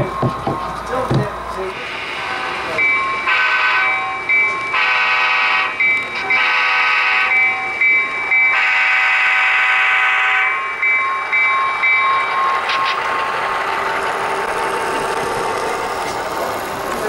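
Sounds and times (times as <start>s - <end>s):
bell ringing: 2.2s - 4.9s, 5.7s - 6.6s, 7.3s - 8.6s, 10.4s - 13.1s
locomotive horn blasts: 3.3s - 4.0s, 4.7s - 7.4s, 8.5s - 10.6s.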